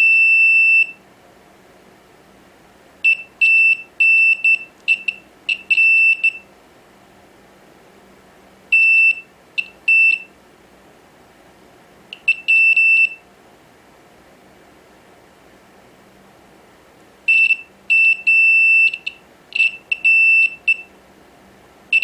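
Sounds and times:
multimeter beeps: 0:00.0 - 0:01.0, 0:03.0 - 0:06.5, 0:08.7 - 0:10.3, 0:12.2 - 0:13.2, 0:17.3 - 0:20.9.

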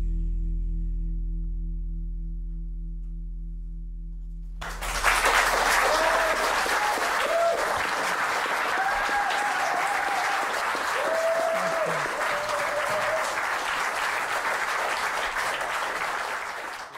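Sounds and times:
audience applause: 0:04.6 - 0:16.9.

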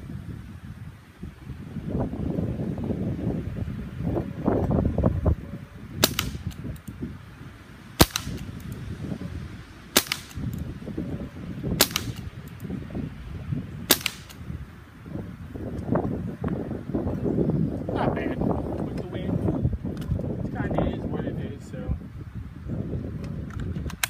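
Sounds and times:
wind rumbling on microphone: 0:00.0 - 0:24.0
air rifle shots: 0:06.0 - 0:06.9, 0:08.0 - 0:08.7, 0:09.9 - 0:10.6, 0:11.8 - 0:12.6, 0:13.9 - 0:14.5.

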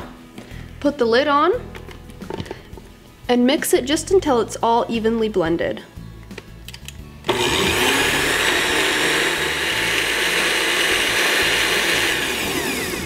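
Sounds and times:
blender mixing liquid: 0:07.3 - 0:13.0.

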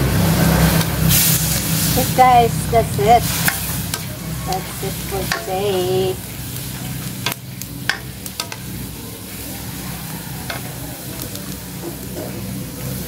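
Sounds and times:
steady sizzle: 0:00.0 - 0:13.0
ladle stirring in a wok: 0:03.2 - 0:12.1.

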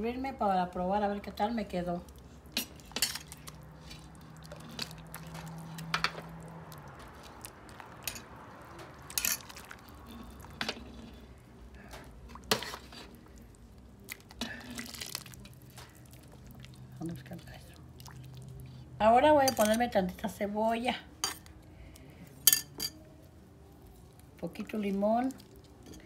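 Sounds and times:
liquid splashing and dripping: 0:02.9 - 0:10.5, 0:12.2 - 0:18.8.

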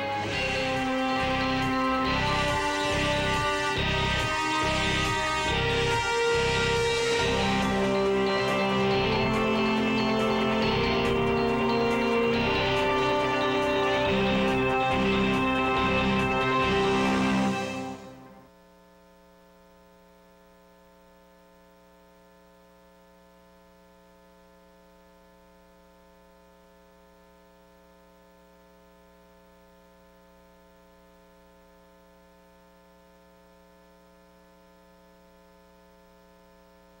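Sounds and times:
faint electrical mains hum: 0:17.3 - 0:37.0.

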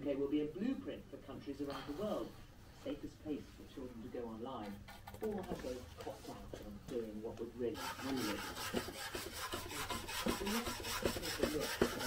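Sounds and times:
wire brush scrubbing wood: 0:07.7 - 0:12.0.

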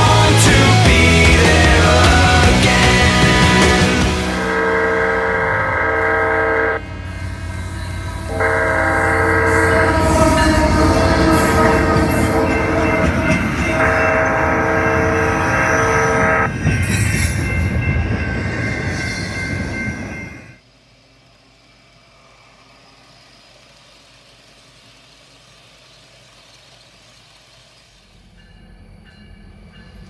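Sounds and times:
locomotive air horn chord: 0:00.0 - 0:16.5
freight train rolling past: 0:00.0 - 0:30.0.

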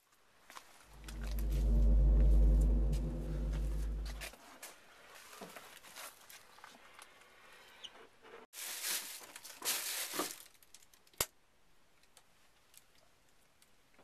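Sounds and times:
rustling scraping noise: 0:00.8 - 0:04.3.

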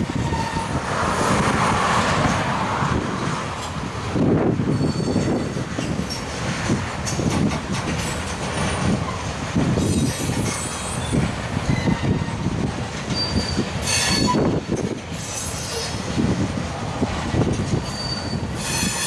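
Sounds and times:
train wheels rumbling on rail: 0:00.0 - 0:19.0
high-pitched wheel squeals: 0:00.2 - 0:00.8, 0:04.7 - 0:05.4, 0:09.8 - 0:12.5, 0:13.1 - 0:14.6, 0:15.2 - 0:16.0, 0:17.8 - 0:19.0
clicks over rail joints: 0:05.8 - 0:09.2.

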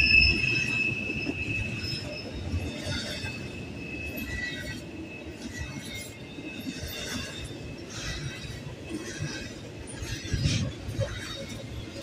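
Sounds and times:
high wheel squeal: 0:00.0 - 0:12.0
metallic clanks of rail cars: 0:00.0 - 0:12.0
rumble of steel train wheels: 0:00.0 - 0:12.0.

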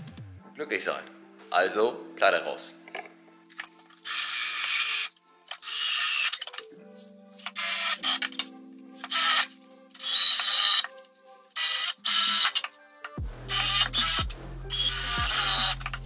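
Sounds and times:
background music with sustained chords: 0:00.0 - 0:16.0
power tool on sheet metal: 0:04.0 - 0:06.4, 0:09.1 - 0:10.9, 0:13.5 - 0:16.0.

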